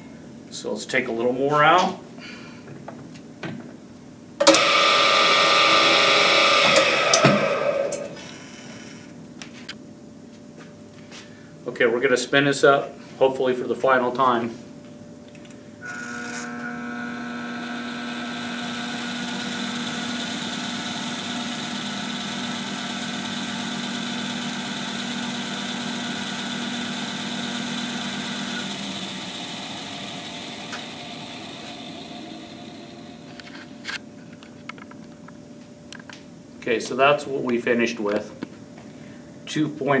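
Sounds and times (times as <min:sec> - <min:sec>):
balancing machine humming and whining: 0:04.4 - 0:09.3, 0:14.8 - 0:36.1.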